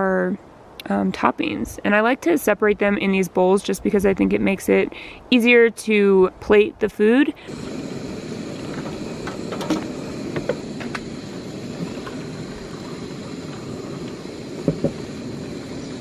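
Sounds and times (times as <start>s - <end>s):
low rushing noise: 7.4s - 16.0s.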